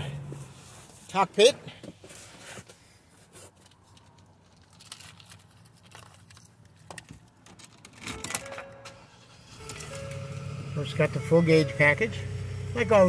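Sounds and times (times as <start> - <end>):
phone handling clicks and rustles: 3.6 - 9.0.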